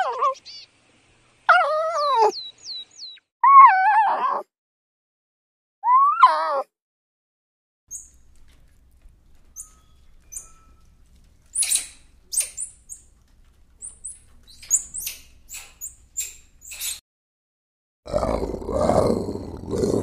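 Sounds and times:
monkey high-pitched chirps: 1.5 - 4.2, 11.5 - 13.1, 13.8 - 17.0.

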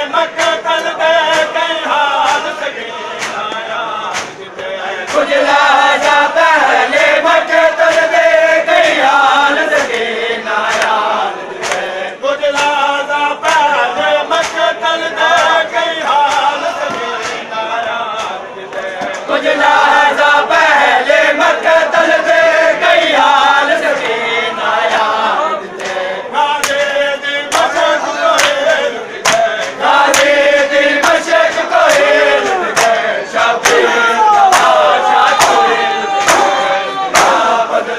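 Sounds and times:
men chanting together: 0.0 - 37.9
hands slapping chests: 0.4 - 7.0, 7.8 - 11.9, 12.5 - 17.5, 18.1 - 20.1, 26.6 - 26.9, 27.5 - 33.0, 33.6 - 37.6.

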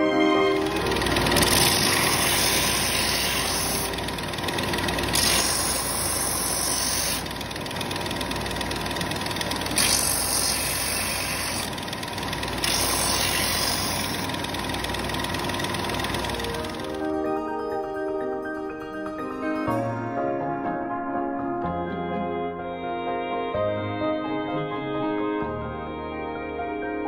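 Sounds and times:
belt sander grinding wood: 0.0 - 17.1
sander motor running: 0.0 - 17.3.

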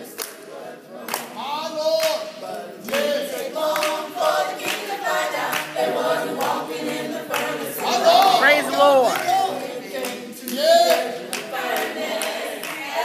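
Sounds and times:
vocal group singing gospel: 0.0 - 13.0
hand claps: 0.1 - 5.8, 10.0 - 12.9.

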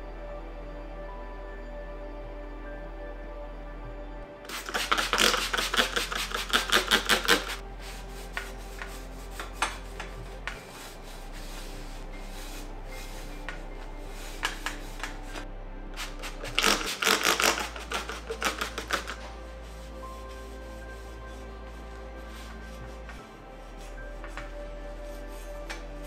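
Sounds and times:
soft background music: 0.0 - 26.0.

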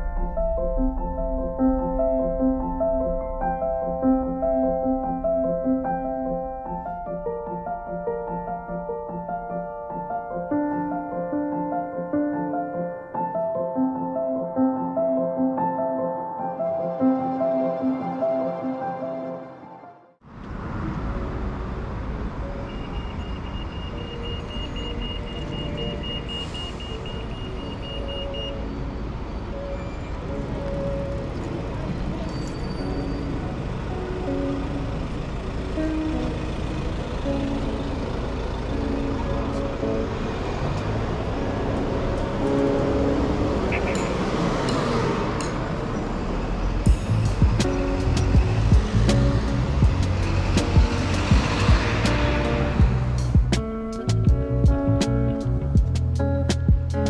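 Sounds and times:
road traffic passing: 0.0 - 13.6, 16.5 - 57.0
background music: 0.0 - 20.2, 46.8 - 57.0
crossing signal beeping: 22.4 - 34.6
bus engine running: 28.6 - 56.9.

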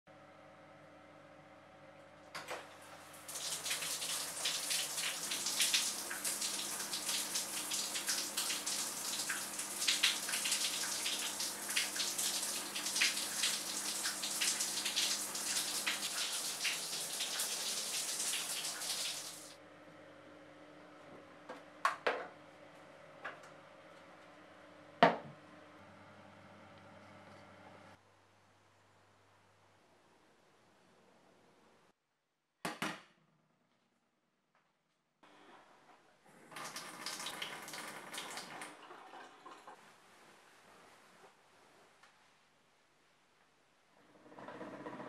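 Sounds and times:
shower head spraying water: 3.3 - 19.6.

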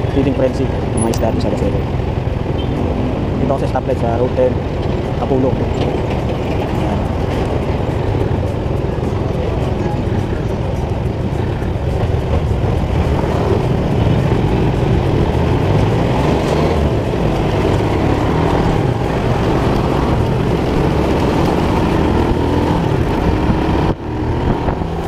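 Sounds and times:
other motorcycles: 0.0 - 25.0
motorcycle engine running: 5.9 - 25.0.

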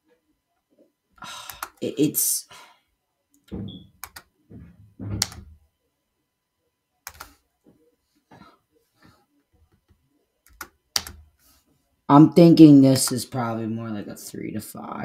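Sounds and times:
computer mouse clicks: 3.3 - 4.3, 7.0 - 7.4, 9.8 - 11.2.

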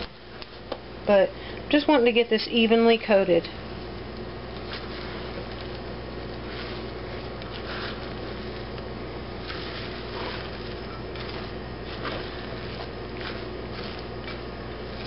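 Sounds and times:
steady low hum: 0.0 - 15.0
wet squishes of bread tossing: 3.8 - 15.0.

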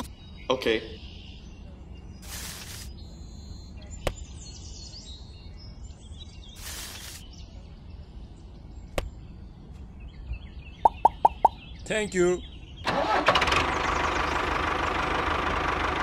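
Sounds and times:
bird chirps: 0.0 - 12.9
short hiss: 2.2 - 2.9, 6.6 - 7.2.

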